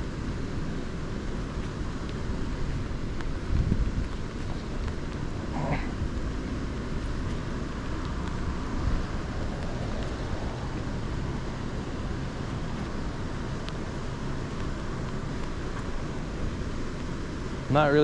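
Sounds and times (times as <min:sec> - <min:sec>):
wind buffeting microphone: 0:01.8 - 0:17.7.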